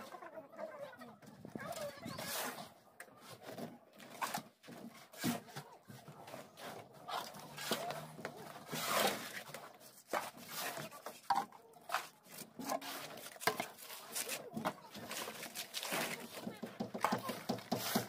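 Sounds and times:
trowel scraping concrete: 2.0s - 2.7s, 6.4s - 18.0s.

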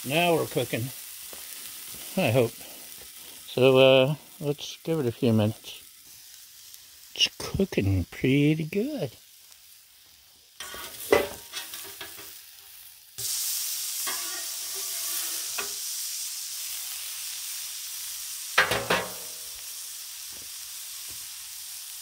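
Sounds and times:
meat sizzling on a griddle: 0.0s - 22.0s
metal spatula scraping griddle: 10.6s - 12.4s, 14.0s - 15.8s.

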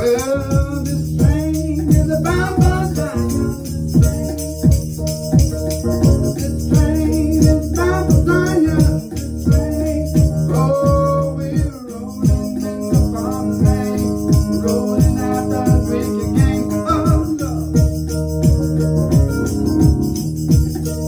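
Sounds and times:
man singing: 0.0s - 4.8s, 6.2s - 18.0s
electronic keyboard: 0.0s - 21.0s
percussion beat: 0.0s - 21.0s.

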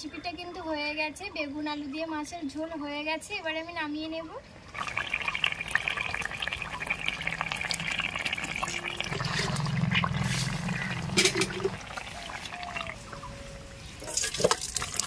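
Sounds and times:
curry boiling in metal pot: 4.7s - 13.3s, 14.0s - 15.0s.

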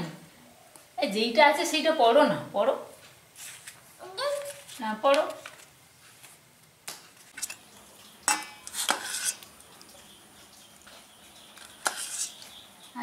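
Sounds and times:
metal spoon clinking dishes: 8.3s - 9.4s.

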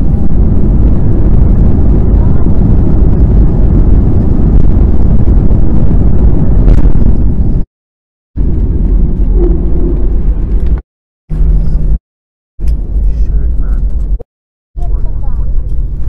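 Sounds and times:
jet engines rumbling: 0.0s - 7.7s, 8.4s - 12.0s.

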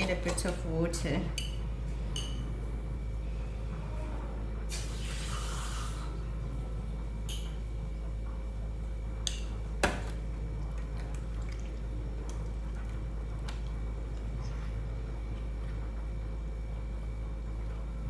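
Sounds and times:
water running: 9.9s - 14.5s.

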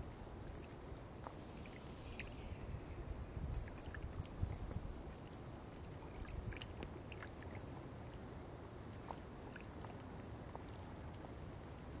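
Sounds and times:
wind on microphone: 2.5s - 5.3s
water lapping: 3.6s - 8.2s, 8.9s - 12.0s.

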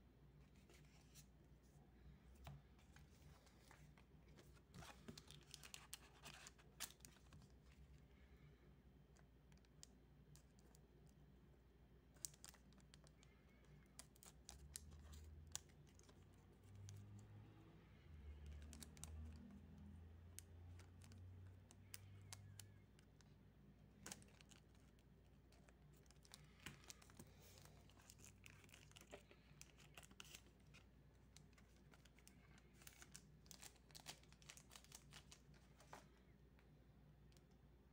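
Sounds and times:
wrapper crinkling and tearing: 31.8s - 35.9s.

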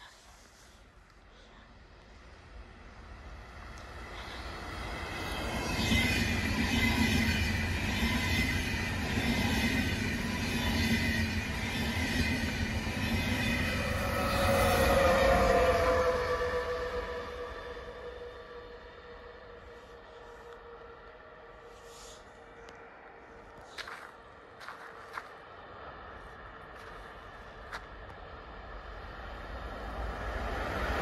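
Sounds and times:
passenger train rushing past: 1.8s - 31.0s
electric locomotive whining: 2.0s - 31.0s.

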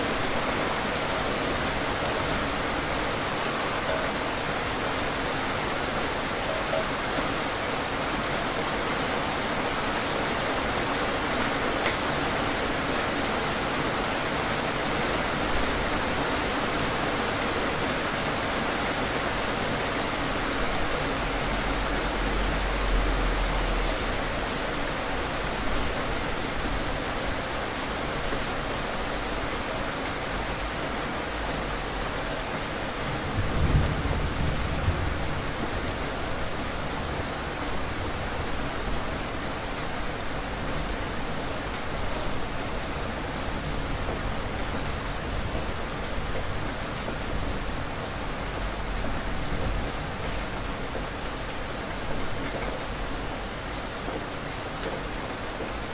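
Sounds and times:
heavy rain falling: 0.0s - 55.9s
thunder rumbling: 33.1s - 36.0s.

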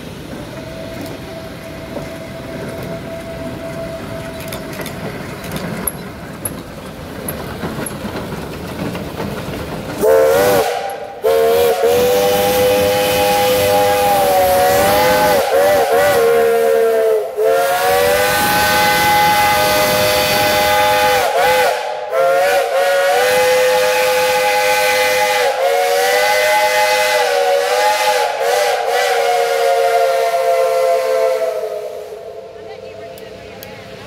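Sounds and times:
locomotive steam whistle: 0.5s - 4.7s, 10.0s - 32.6s.

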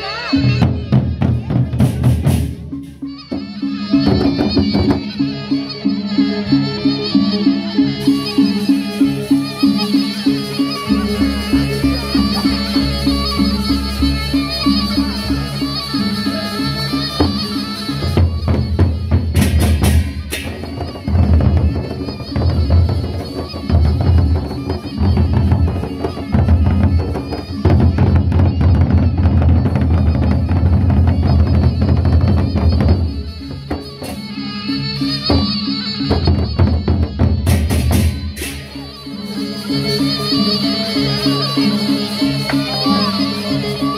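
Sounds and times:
heavy drums beating: 0.4s - 5.4s, 17.0s - 34.3s, 35.2s - 38.7s
hand cymbals clashing: 8.0s - 28.0s, 37.5s - 43.9s.

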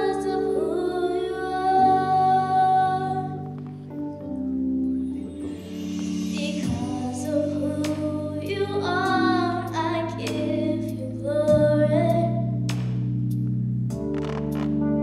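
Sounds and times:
girl singing into microphone: 0.0s - 3.8s, 6.0s - 12.7s.

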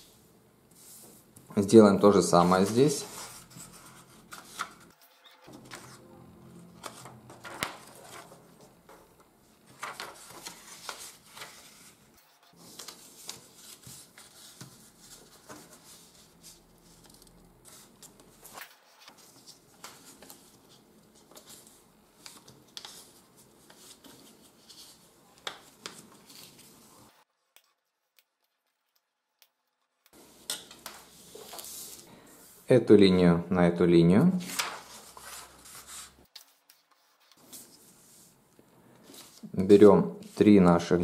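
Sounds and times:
paper folding rustle: 2.3s - 6.0s, 6.8s - 27.2s, 30.2s - 32.1s, 34.4s - 38.4s, 39.0s - 40.6s
paper creasing crackles: 9.6s - 16.2s, 34.4s - 36.4s.

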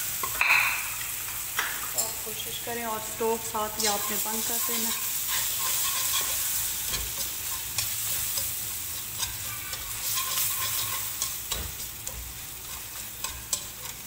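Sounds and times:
steady sizzle: 0.0s - 14.0s
whisk scraping and clicking in pan: 3.8s - 14.0s.

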